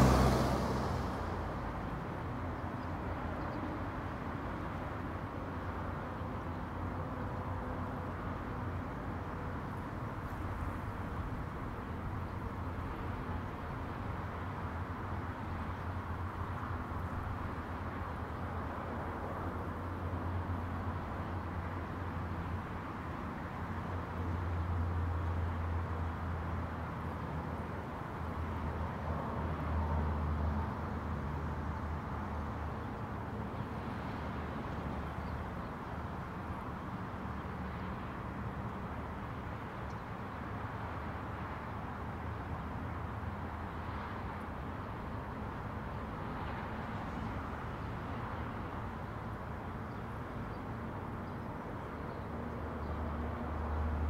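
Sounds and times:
vehicle passing: 0:00.0 - 0:02.3
traffic rumble: 0:00.0 - 0:54.0
wind: 0:00.0 - 0:54.0.

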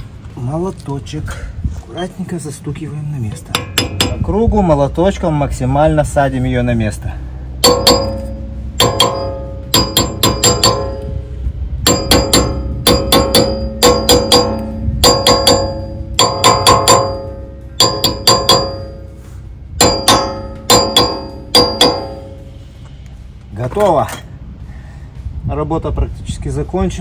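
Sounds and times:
hammer clanking on metal: 0:03.5 - 0:04.3, 0:07.6 - 0:11.2, 0:11.8 - 0:19.2, 0:19.8 - 0:22.5.

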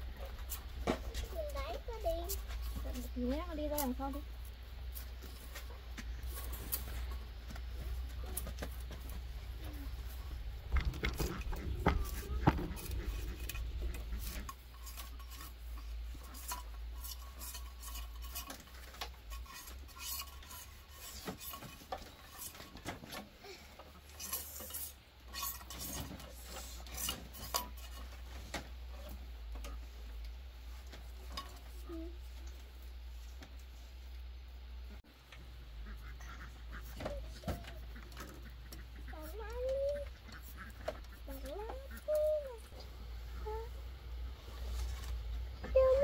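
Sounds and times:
blade scraping bamboo: 0:10.8 - 0:23.3, 0:23.9 - 0:29.2.

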